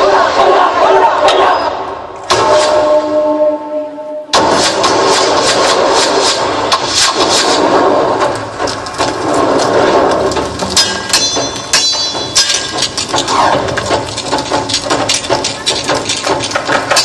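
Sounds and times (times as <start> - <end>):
sharp cracks and knocks: 4.4 - 17.0.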